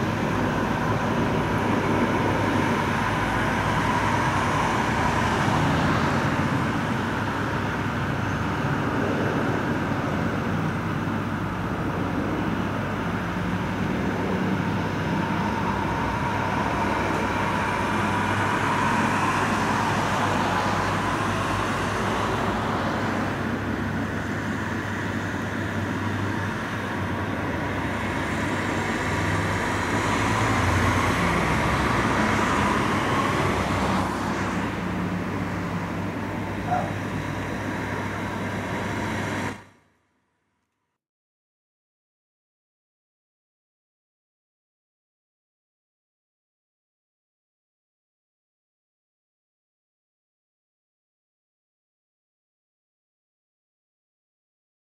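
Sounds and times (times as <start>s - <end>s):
helicopter turbine whine: 0.0s - 39.7s
low rotor rumble: 0.0s - 40.2s.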